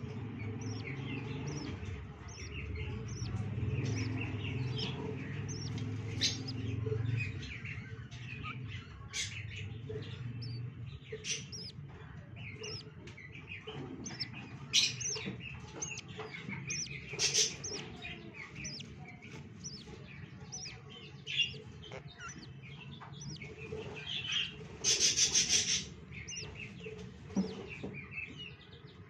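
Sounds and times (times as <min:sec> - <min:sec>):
budgerigars chirping: 0:00.0 - 0:29.0.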